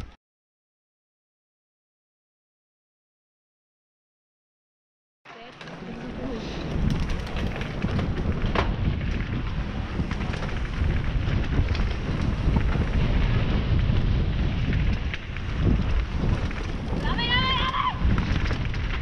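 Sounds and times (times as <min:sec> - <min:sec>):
bike chain and frame rattling: 0:05.5 - 0:19.0
wind on microphone: 0:05.7 - 0:19.0.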